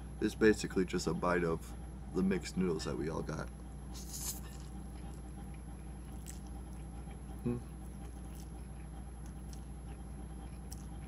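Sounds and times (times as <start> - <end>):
low electrical hum: 0.0 - 11.0
wet chewing sounds: 4.0 - 11.0
man humming: 7.4 - 7.8.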